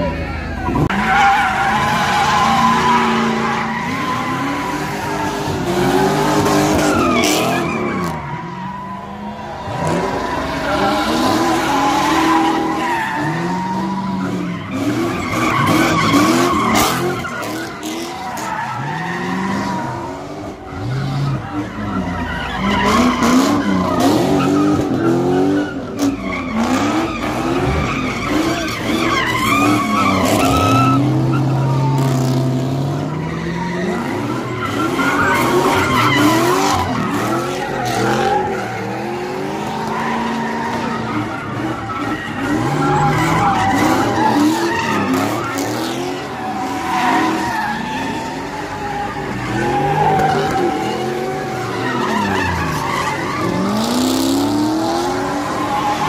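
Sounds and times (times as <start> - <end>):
car engine revving: 0.0 - 56.0
tires squealing on pavement: 0.0 - 56.0.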